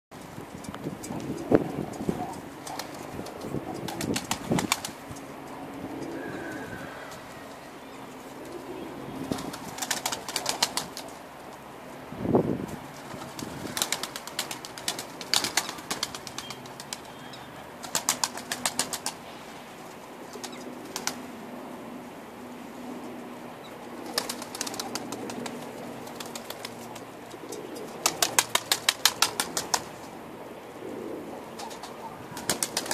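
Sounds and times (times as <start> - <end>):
pigeons cooing: 0.9 - 11.2, 23.6 - 29.8, 30.4 - 32.9
pigeon wings flapping: 2.5 - 5.2, 9.3 - 11.2, 12.9 - 17.2, 17.8 - 19.2, 20.3 - 21.3, 24.0 - 30.1, 31.6 - 32.9.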